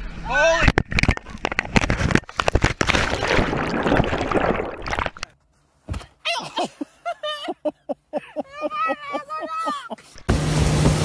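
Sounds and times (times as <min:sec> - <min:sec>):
water splashing and rushing: 0:01.6 - 0:05.3, 0:10.2 - 0:11.0.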